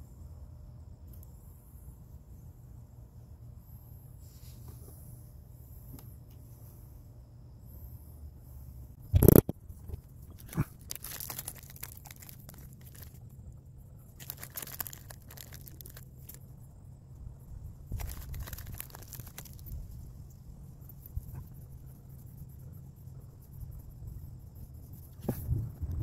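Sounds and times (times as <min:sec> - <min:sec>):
crinkling and scraping: 0:09.1 - 0:13.4, 0:14.1 - 0:16.4, 0:17.9 - 0:19.8.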